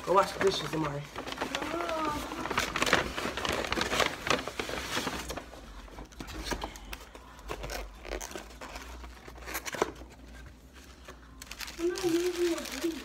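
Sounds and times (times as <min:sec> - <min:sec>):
paper bag rustling and crinkling: 0:00.0 - 0:13.0.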